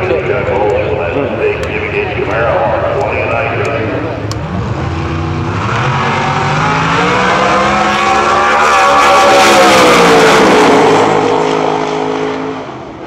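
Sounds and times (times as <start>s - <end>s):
drag car engine accelerating past: 4.3s - 13.0s.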